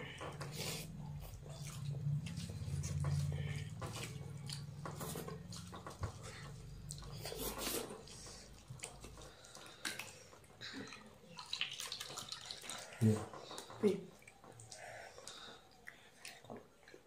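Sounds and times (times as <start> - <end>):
chewing: 0.0 - 17.0.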